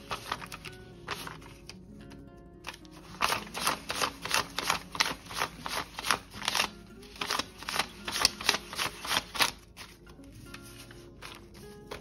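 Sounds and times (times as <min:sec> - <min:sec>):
paper bills snapping: 0:00.0 - 0:01.8, 0:02.6 - 0:12.0.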